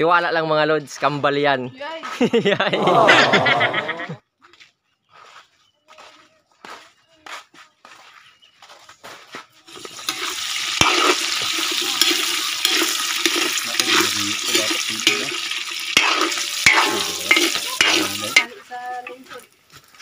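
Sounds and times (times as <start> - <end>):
food sizzling in hot oil: 9.7 - 20.0
metal spatula knocking on pan: 10.8 - 18.5.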